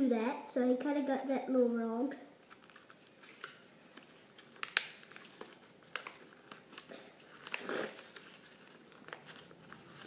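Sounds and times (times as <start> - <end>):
paper rustling: 2.4 - 10.0
paper folding clicks and taps: 2.5 - 8.3.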